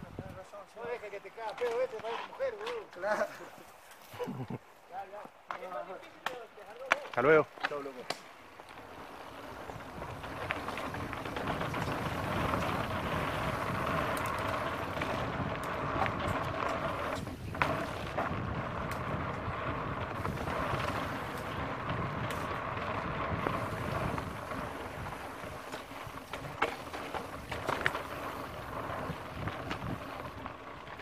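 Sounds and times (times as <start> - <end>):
bike tyre noise: 0.1 - 31.0
bike rattling: 5.4 - 31.0
wind rushing over microphone: 9.0 - 31.0.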